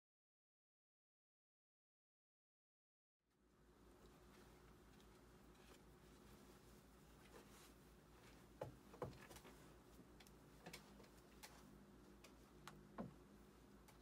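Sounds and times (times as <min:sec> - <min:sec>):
faint low hum: 0:03.3 - 0:14.0
faint sharp clicks and taps: 0:08.2 - 0:13.2.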